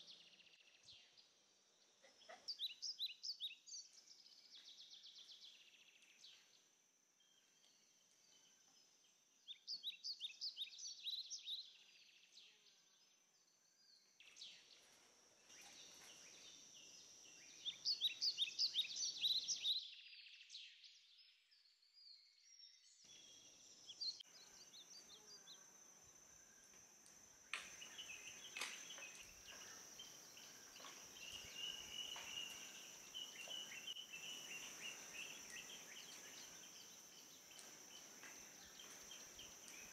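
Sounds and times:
high insect drone: 14.2 - 19.7, 23.1 - 39.9
bird calls: 27.5 - 39.9.

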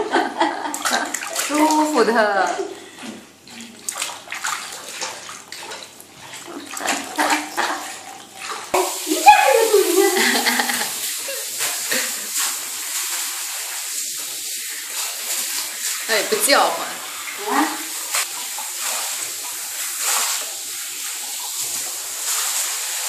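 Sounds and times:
hands scrubbing wet fur: 0.6 - 23.0
small water splashes: 0.7 - 23.0
shower head spraying water: 8.6 - 23.0.

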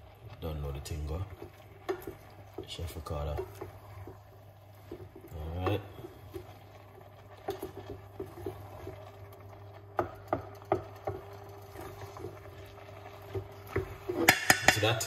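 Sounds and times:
wooden spoon stirring in a pan: 0.0 - 15.0
spoon knocking against pan: 9.9 - 11.3, 13.3 - 15.0.

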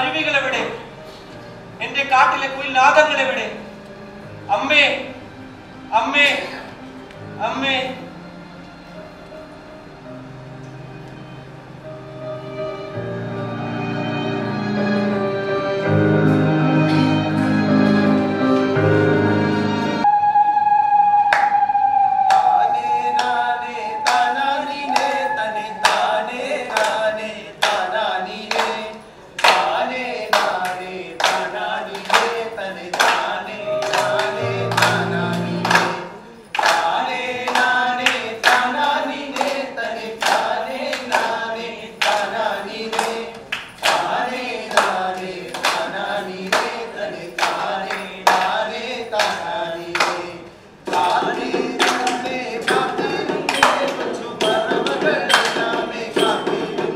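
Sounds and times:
group singing: 20.0 - 56.9
music with sharp beat: 50.9 - 56.9.

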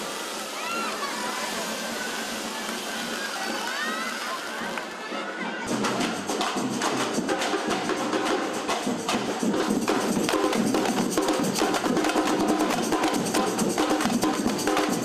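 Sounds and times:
drum group playing fast rhythm: 5.6 - 15.0.

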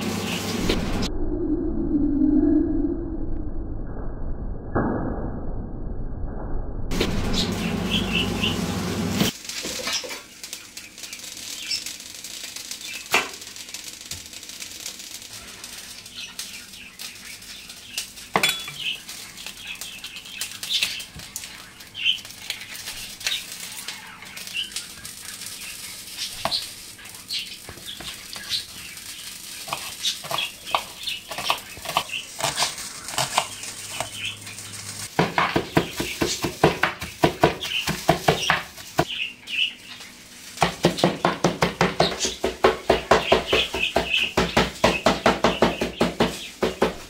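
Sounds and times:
chicken sizzling in a pan: 0.0 - 1.1, 7.0 - 47.0.

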